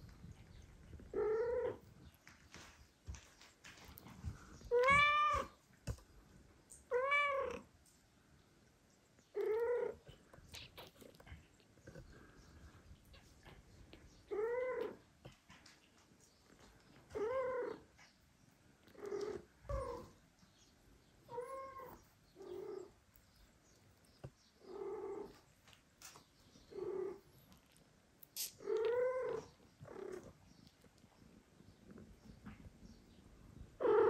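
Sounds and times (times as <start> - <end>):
cat meowing: 4.7 - 5.6.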